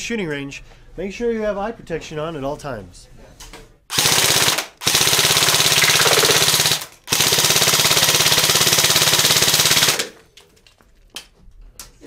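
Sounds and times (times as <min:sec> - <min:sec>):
airsoft rifle automatic bursts: 0:03.9 - 0:10.2.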